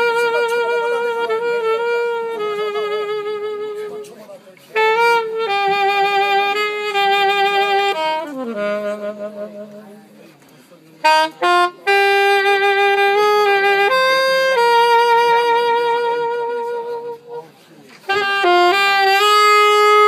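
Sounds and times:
alto saxophone melody: 0.0s - 10.2s, 11.0s - 20.0s.

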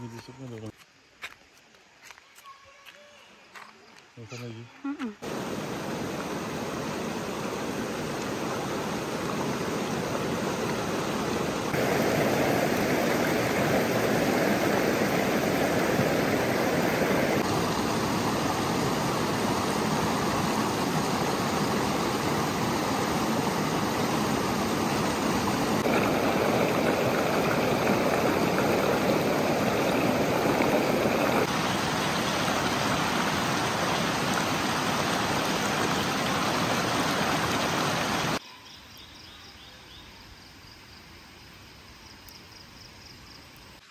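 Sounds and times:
stream rushing over rocks: 5.2s - 38.4s.

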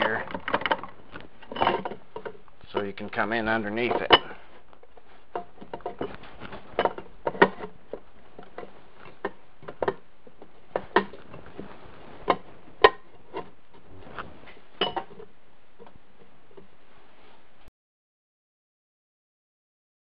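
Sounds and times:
faint steady hiss: 0.0s - 17.7s
metal clinking against metal: 3.6s - 4.4s, 14.8s - 15.3s.

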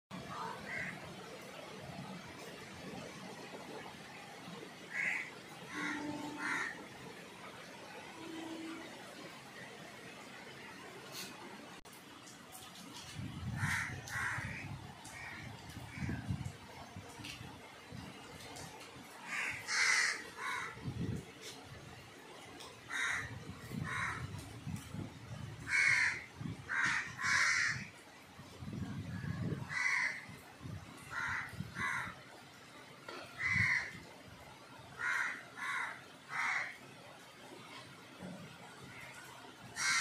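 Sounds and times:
crows cawing: 0.5s - 1.0s, 4.9s - 6.8s, 13.6s - 16.2s, 19.2s - 20.8s, 22.9s - 24.4s, 25.7s - 27.9s, 29.5s - 30.4s, 31.1s - 32.2s, 33.1s - 34.0s, 35.0s - 36.8s, 39.8s - 40.0s.

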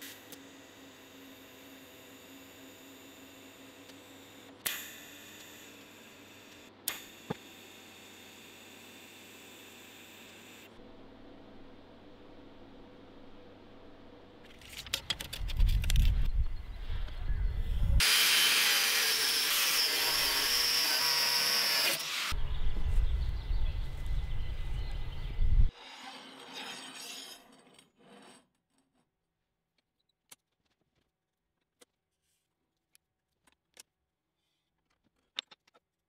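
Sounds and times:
power tool working steel: 18.0s - 22.4s
low rumble: 22.4s - 25.7s.

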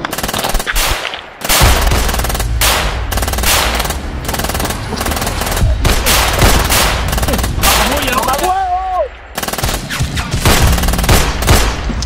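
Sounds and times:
rapid rifle fire: 0.0s - 8.4s, 9.4s - 11.8s.

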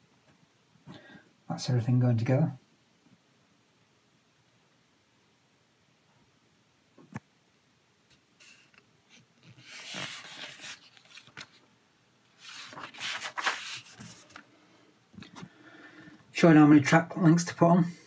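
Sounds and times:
paper pages rustling: 8.4s - 11.7s, 12.3s - 14.5s.

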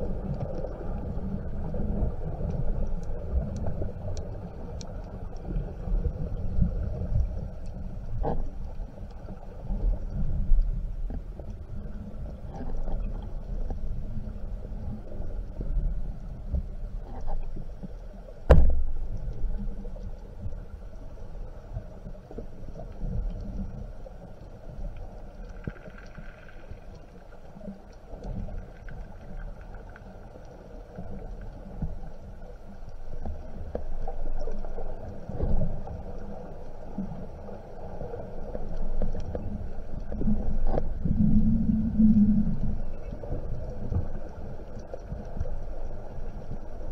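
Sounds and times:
muffled underwater rumble: 0.0s - 46.9s
short low hum: 40.9s - 43.2s.

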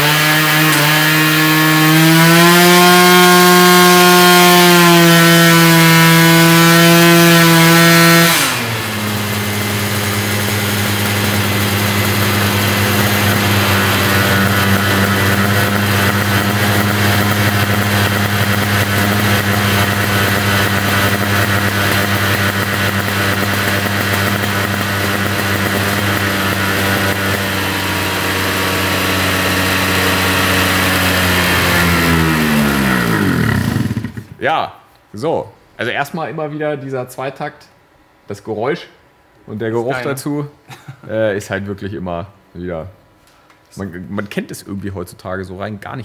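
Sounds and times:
scooter engine revving high: 0.0s - 34.4s.

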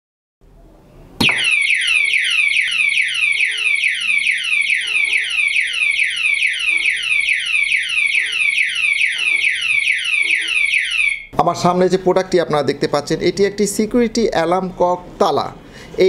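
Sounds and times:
padlock alarm siren sweeps: 1.2s - 11.3s.

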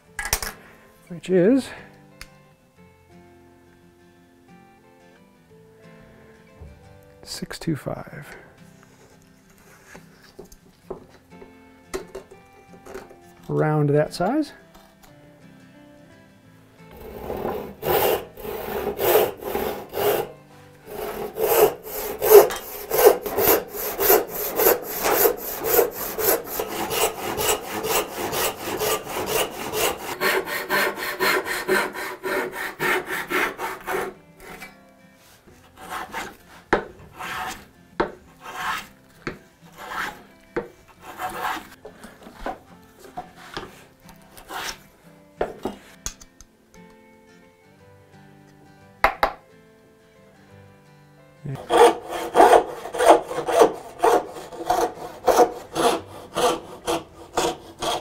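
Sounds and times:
hand saw cutting wood: 16.9s - 34.7s, 35.6s - 42.6s, 44.4s - 44.8s, 51.6s - 58.0s.

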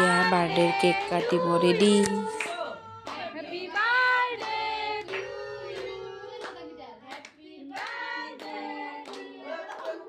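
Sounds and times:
hand claps: 2.4s - 3.3s, 6.4s - 10.0s
children singing together: 3.7s - 6.8s.

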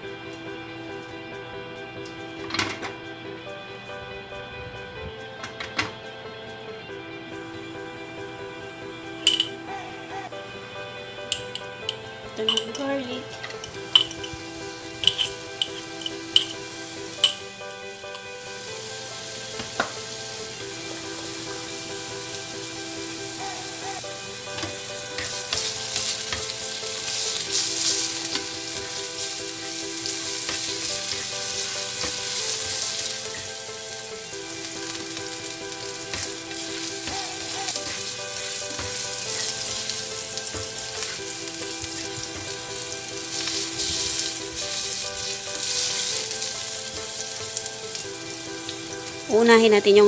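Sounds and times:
garlic sizzling in oil: 10.4s - 50.0s.

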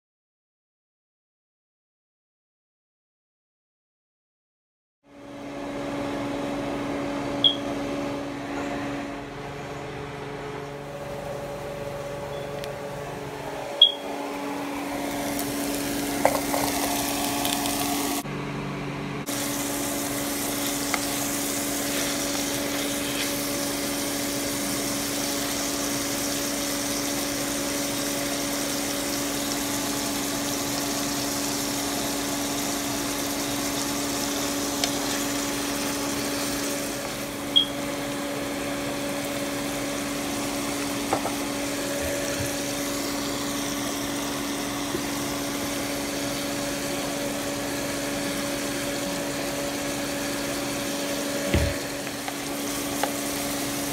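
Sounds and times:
meat sizzling in a frying pan: 14.8s - 18.2s, 19.3s - 37.4s, 51.8s - 53.9s.

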